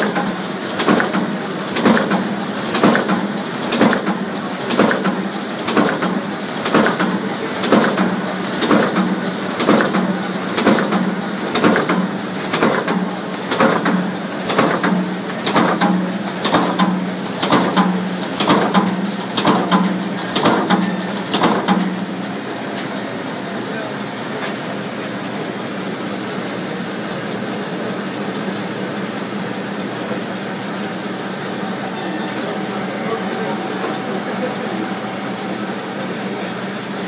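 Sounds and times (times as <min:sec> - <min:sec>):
rhythmic mechanical clatter: 0:00.0 - 0:23.4
steady motor hum: 0:00.0 - 0:37.0.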